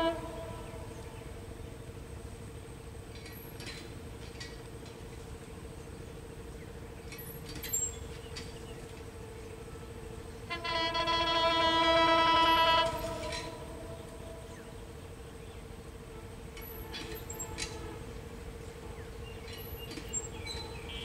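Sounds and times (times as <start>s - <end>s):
locomotive horn blast: 0.0s - 2.0s, 9.1s - 19.3s.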